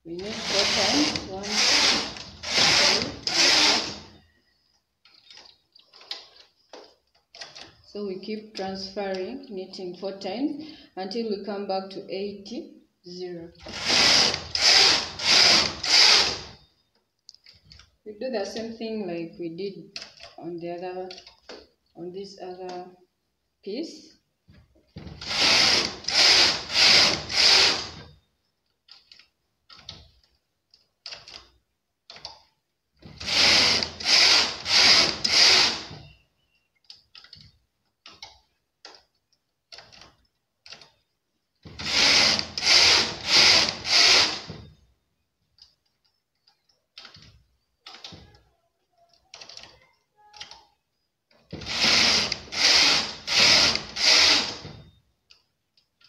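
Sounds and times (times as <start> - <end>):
knitting machine carriage sliding: 0.2 - 4.1.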